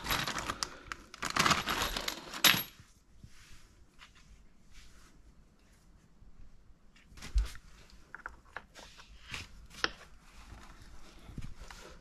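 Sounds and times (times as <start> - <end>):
plastic bag crinkling: 0.0 - 2.4.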